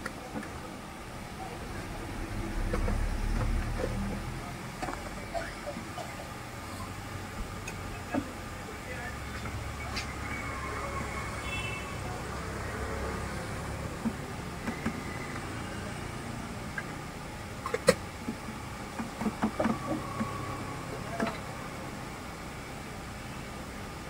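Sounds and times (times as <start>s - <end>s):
low background hum: 0.0s - 11.6s
sharp clicks and knocks: 17.6s - 20.4s.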